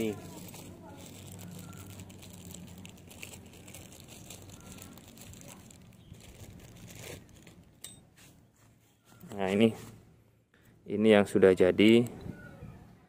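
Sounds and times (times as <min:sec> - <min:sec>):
rustling handling noise: 0:00.0 - 0:10.1.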